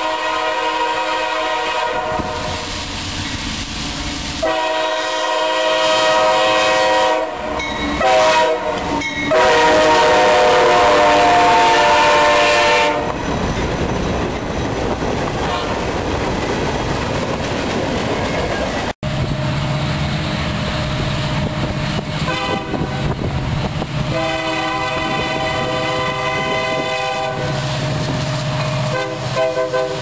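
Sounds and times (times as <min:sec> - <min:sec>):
locomotive air horn blasts: 0:00.0 - 0:02.8, 0:03.8 - 0:13.2, 0:15.4 - 0:15.8, 0:22.2 - 0:23.1, 0:24.0 - 0:27.7, 0:28.8 - 0:30.0
locomotive engines rumbling: 0:00.0 - 0:30.0.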